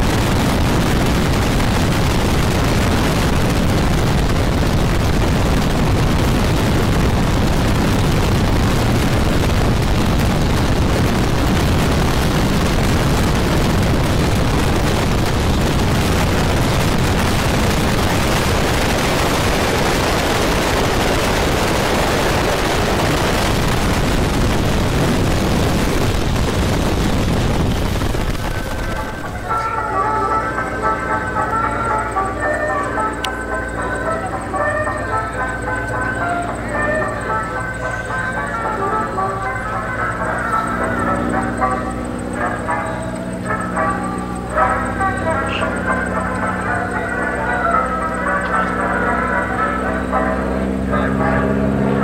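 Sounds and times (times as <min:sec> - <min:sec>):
slipstream wind buffeting microphone: 0:00.0 - 0:29.9
airplane engine running: 0:00.0 - 0:52.0.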